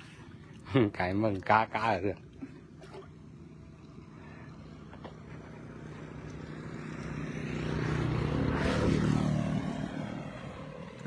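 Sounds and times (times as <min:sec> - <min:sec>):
vehicle passing by: 0:03.1 - 0:11.0.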